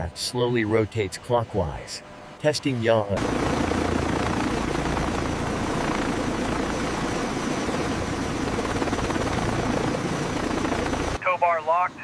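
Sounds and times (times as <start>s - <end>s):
aircraft rotors and engines: 0.0s - 12.0s.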